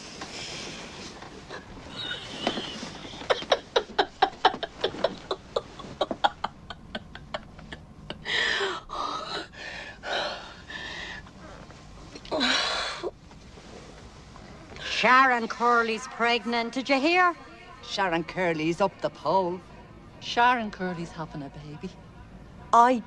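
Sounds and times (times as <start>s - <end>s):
heavy breaths and gasps: 8.2s - 11.7s.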